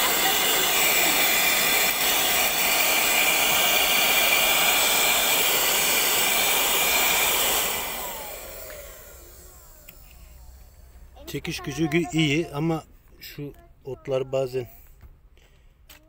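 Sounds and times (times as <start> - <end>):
handheld vacuum whirring: 0.0 - 12.4
motor winding down: 0.0 - 12.4.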